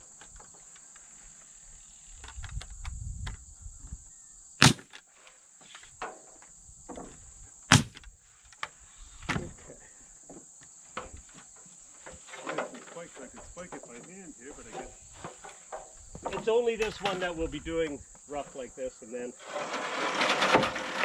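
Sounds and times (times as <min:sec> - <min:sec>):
crickets chirring: 0:00.0 - 0:21.0
pneumatic nailer firing: 0:04.6 - 0:05.0, 0:07.7 - 0:08.1.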